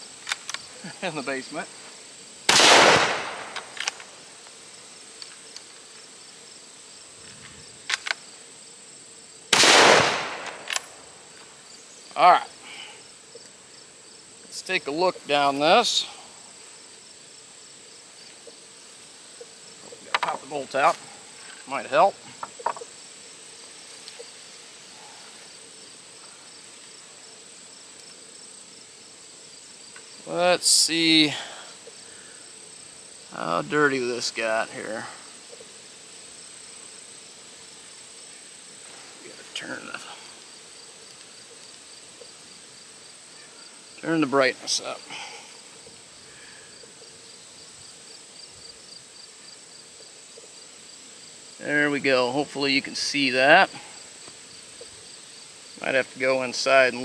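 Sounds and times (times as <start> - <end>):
insects chirring: 0.0 - 57.0
rifle shot echo: 2.5 - 4.0, 9.5 - 11.0.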